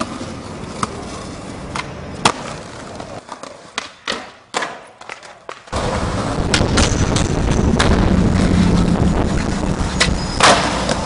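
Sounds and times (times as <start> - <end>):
skateboard knocks and clacks: 0.0 - 8.0, 9.3 - 11.0
loud steady rumbling: 5.8 - 11.0.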